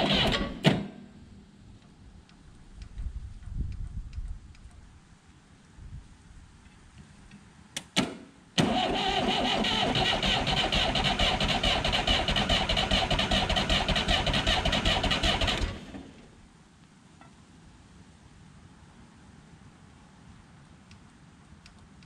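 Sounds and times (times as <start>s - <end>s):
diesel engine cranking: 0.0s - 0.9s, 8.6s - 16.4s.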